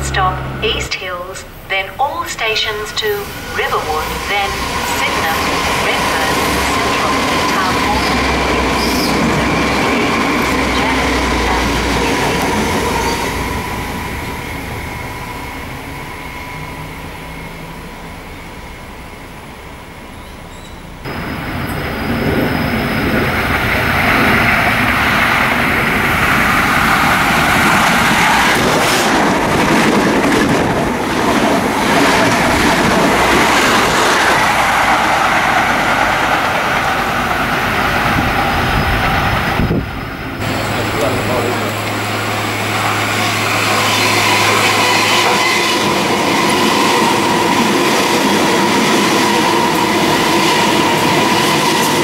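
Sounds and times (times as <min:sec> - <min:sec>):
diesel railcar passing: 0:00.0 - 0:52.0
diesel train passing at speed: 0:00.0 - 0:52.0.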